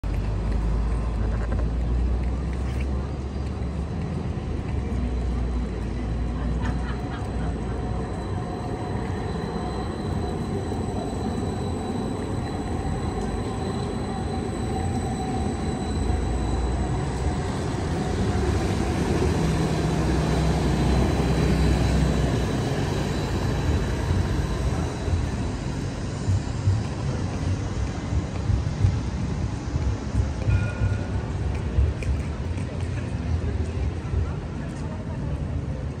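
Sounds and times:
tram rumbling on rails: 0.0s - 36.0s
faint high whine: 7.3s - 32.4s.

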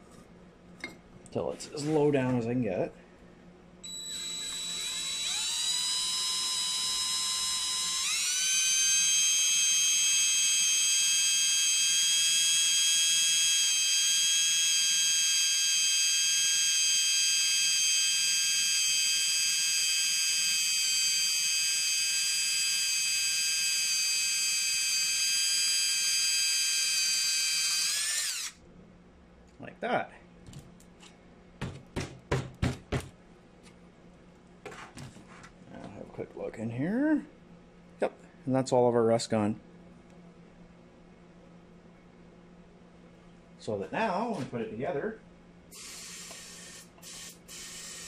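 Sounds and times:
cordless drill motor whine: 3.8s - 28.6s, 45.7s - 48.0s.

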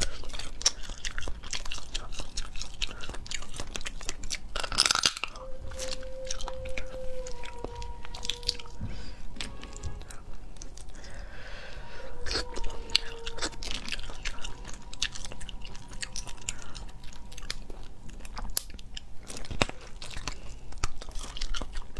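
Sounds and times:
crab shells cracking: 0.0s - 7.0s
chewing: 0.0s - 21.9s.

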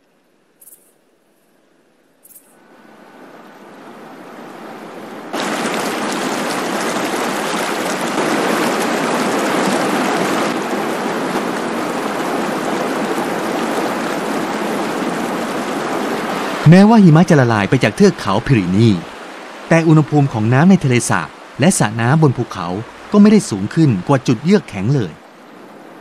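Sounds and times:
mountain stream rushing over boulders: 2.9s - 26.0s.

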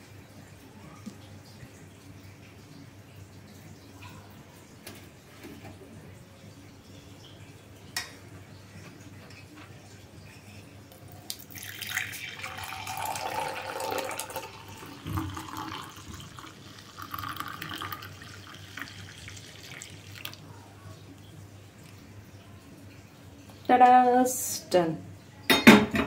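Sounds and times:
milk pouring into glass mug: 11.2s - 20.5s.

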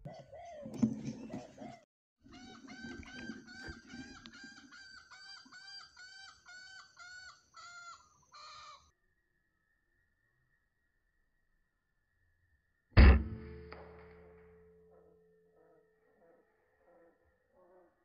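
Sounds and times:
hen clucking: 0.1s - 7.9s.

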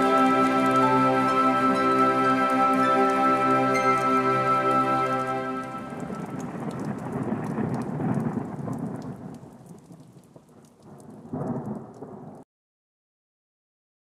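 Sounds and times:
rain: 0.0s - 12.5s
thunder rumbling: 5.6s - 12.4s.

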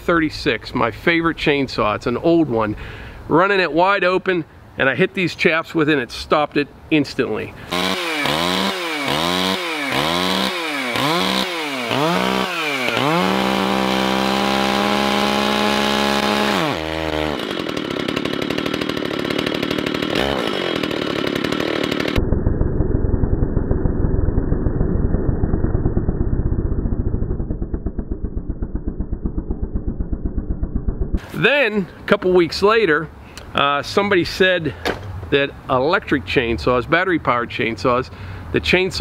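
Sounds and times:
chainsaw revving: 7.6s - 22.2s.

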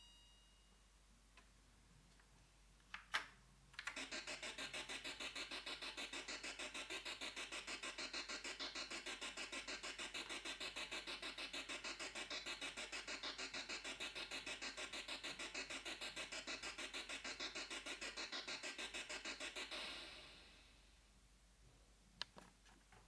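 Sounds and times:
pulsing electronic organ tune: 3.8s - 20.9s.

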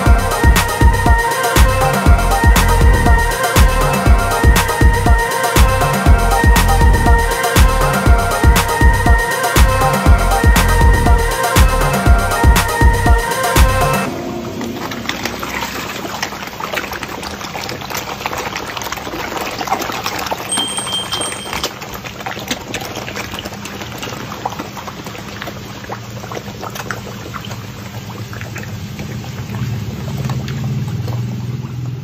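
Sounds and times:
low hum: 0.0s - 17.2s
fish splashing water: 0.0s - 32.0s.

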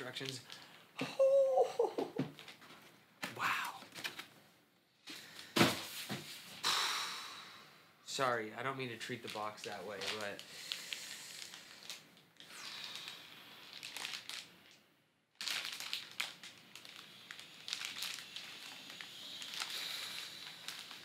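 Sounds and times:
plastic bag crinkling: 9.0s - 14.8s, 15.4s - 21.0s.

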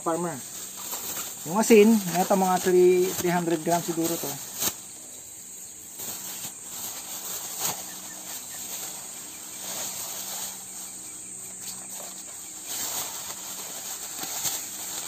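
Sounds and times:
insect chirring: 0.0s - 15.0s
plastic bag rustling: 0.2s - 15.0s
salt pattering: 0.4s - 4.8s.

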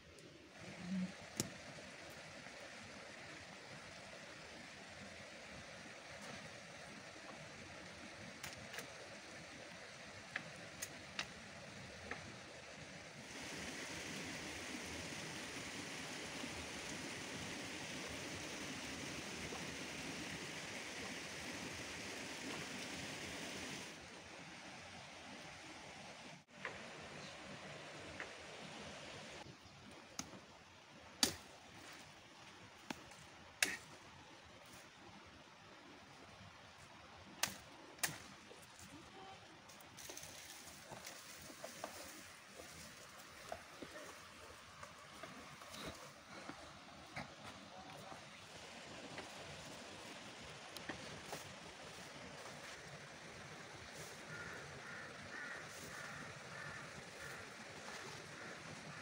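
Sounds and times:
steady hiss: 8.0s - 29.5s.

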